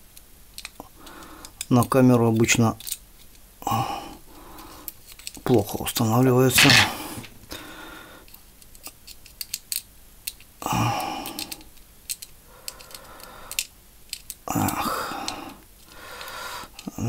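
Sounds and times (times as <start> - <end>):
murmur of breath or voice: 14.5 - 16.8.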